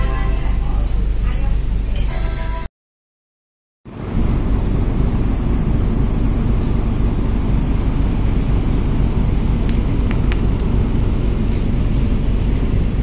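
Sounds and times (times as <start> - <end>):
ferry engines droning: 3.9 - 13.0.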